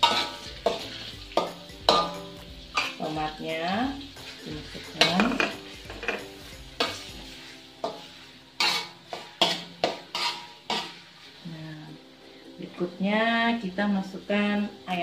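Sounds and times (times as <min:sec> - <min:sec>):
metal spatula scraping a wok: 0:00.0 - 0:11.5
food sizzling in oil: 0:00.0 - 0:15.0.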